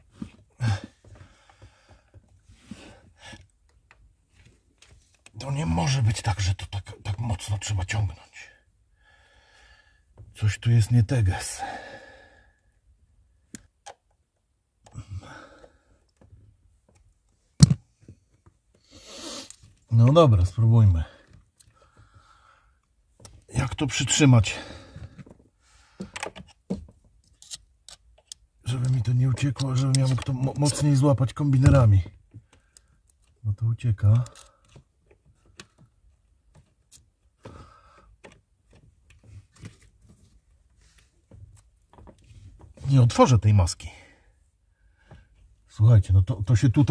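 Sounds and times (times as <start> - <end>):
pliers clicking on cable: 27.3 - 30.3.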